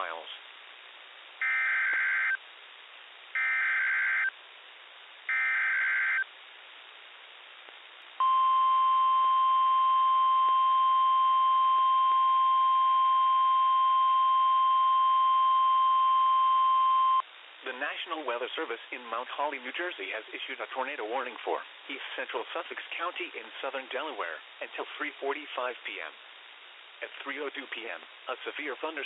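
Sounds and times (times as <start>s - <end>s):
faint radio hiss: 0.0s - 29.0s
steady warning alarm tone: 1.4s - 2.4s, 3.4s - 4.3s, 5.3s - 6.2s.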